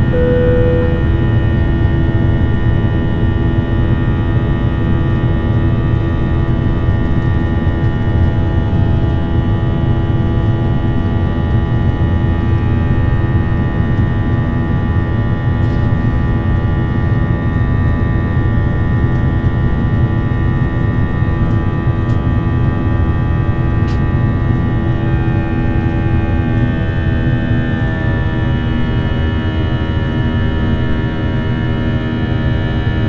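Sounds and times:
aircraft cabin engine rumble: 0:00.0 - 0:01.2
held steady tones: 0:00.0 - 0:01.2.

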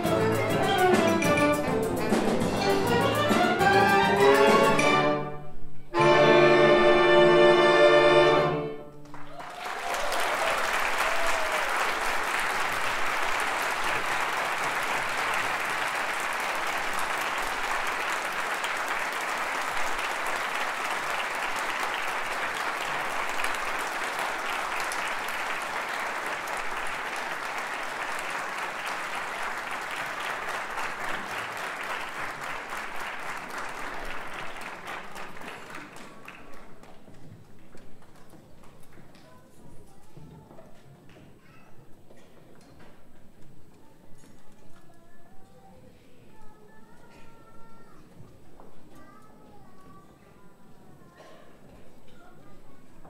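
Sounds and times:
audience applauding: 0:09.0 - 0:38.9.

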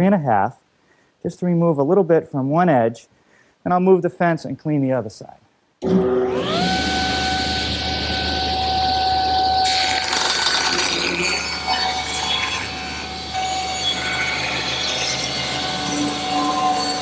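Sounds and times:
table saw whine: 0:05.8 - 0:17.0.

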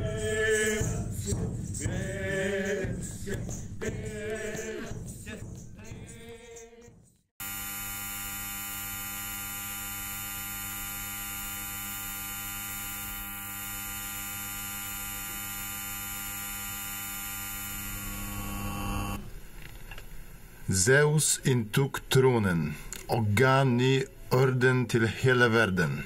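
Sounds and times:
electrical hum with buzz: 0:07.4 - 0:21.8.

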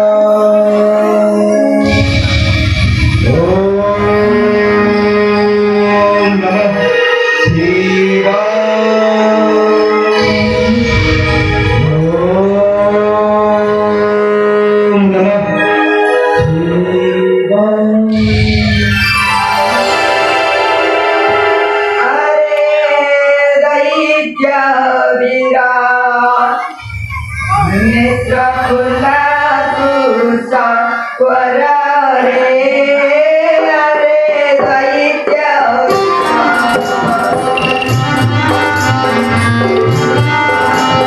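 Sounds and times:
person singing: 0:00.0 - 0:41.0
held accompanying notes: 0:18.1 - 0:22.7, 0:35.9 - 0:41.0
drums playing quick rhythm: 0:35.9 - 0:41.0.

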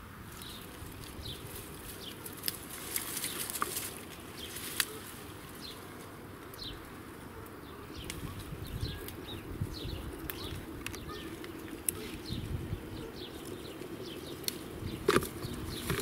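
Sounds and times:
plants rustling: 0:00.2 - 0:16.0
bird chirps: 0:07.6 - 0:16.0.

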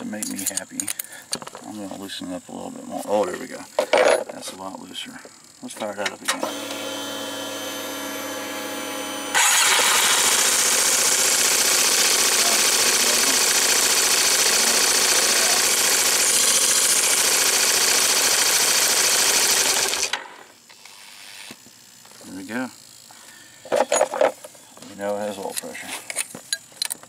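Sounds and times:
steady hum: 0:00.0 - 0:10.8
scooter engine running: 0:06.4 - 0:20.2.

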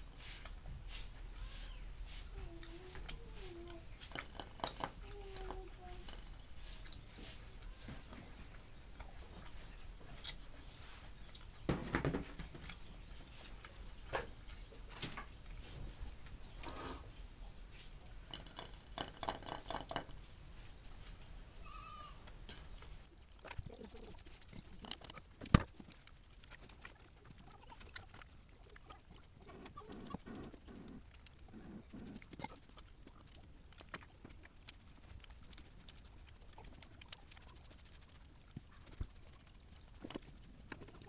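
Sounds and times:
wet rice gathered by hand: 0:00.0 - 0:02.3
chewing and smacking: 0:00.0 - 0:21.3, 0:22.3 - 0:41.0.

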